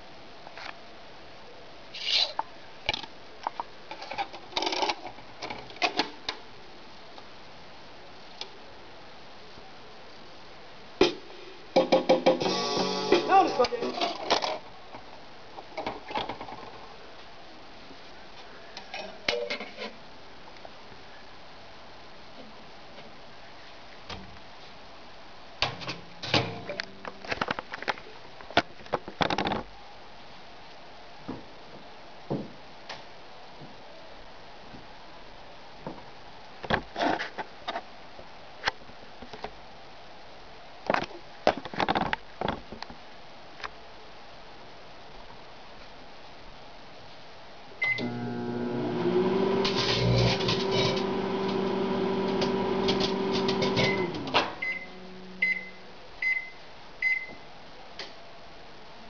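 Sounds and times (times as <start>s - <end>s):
microwave oven hum: 47.8s - 55.8s.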